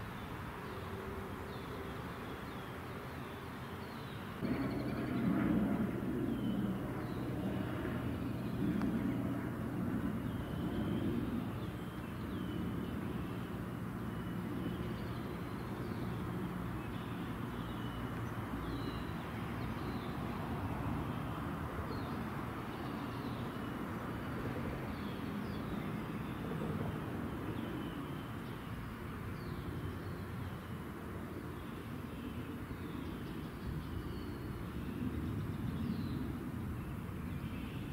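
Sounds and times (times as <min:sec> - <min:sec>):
distant vehicles rumbling: 0:00.0 - 0:33.6
small birds chirping: 0:06.2 - 0:20.4.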